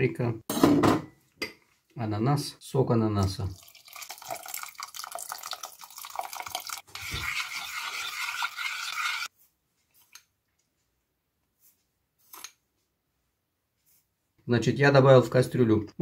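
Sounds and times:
liquid pouring into metal pot: 3.5s - 9.3s.

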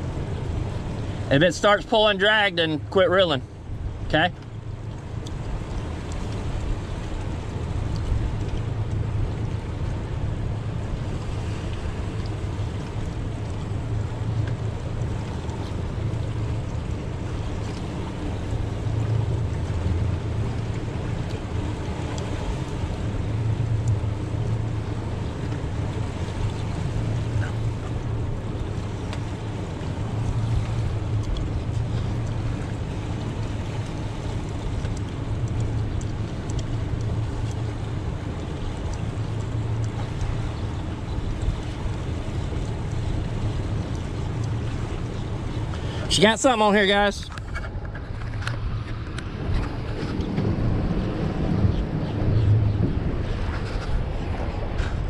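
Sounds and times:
outboard motor running: 0.0s - 55.0s
water around hull: 0.0s - 55.0s
wind on microphone: 47.3s - 55.0s.

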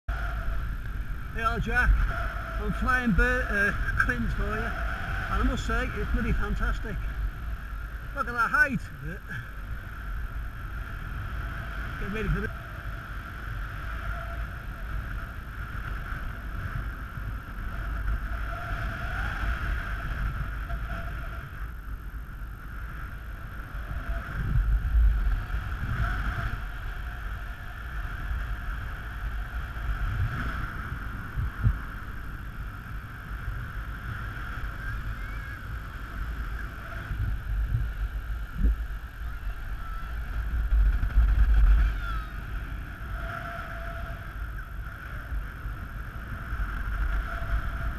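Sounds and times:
wind buffeting microphone: 0.1s - 47.9s
constant high tone: 34.2s - 45.4s.

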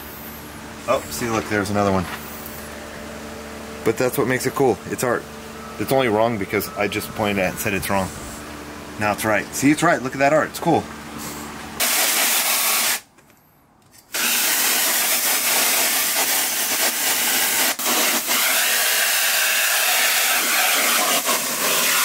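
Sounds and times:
hose nozzle spraying water: 11.8s - 13.0s, 14.1s - 22.0s.

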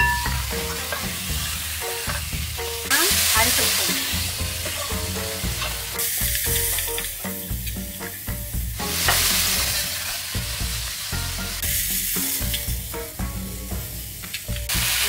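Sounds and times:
metal spoon scraping wok: 0.0s - 2.3s, 4.1s - 7.4s
meat sizzling in oil: 0.0s - 15.0s.

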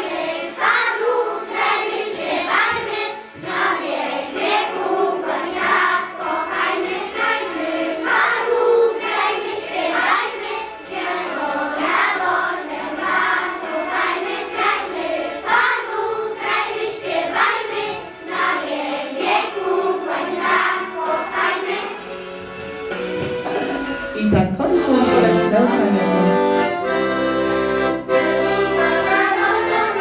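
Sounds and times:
children singing in unison: 0.0s - 22.2s, 28.2s - 30.0s.

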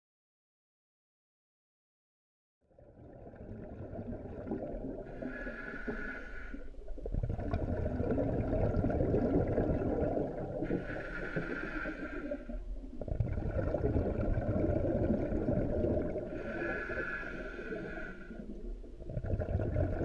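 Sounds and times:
bubbling exhaled air: 2.8s - 20.0s
hissing inhalation through regulator: 5.0s - 6.9s, 10.6s - 12.9s, 16.2s - 18.8s.

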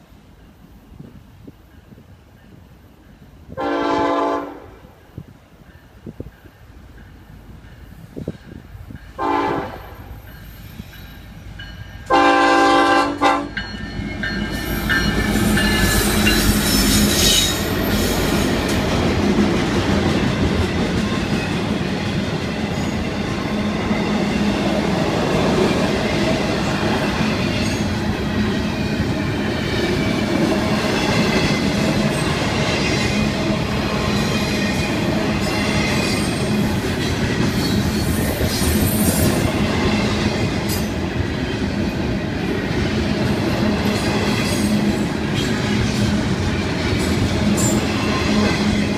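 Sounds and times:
train rumbling past: 0.0s - 48.9s
locomotive horn: 3.6s - 4.8s, 9.2s - 10.0s, 12.1s - 13.6s
wheels clacking on rails: 5.0s - 48.9s.

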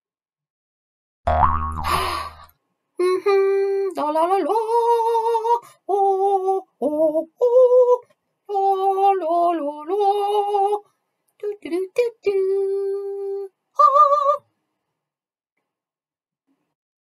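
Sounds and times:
woman singing mock-operatic: 3.0s - 10.8s, 11.4s - 14.4s.

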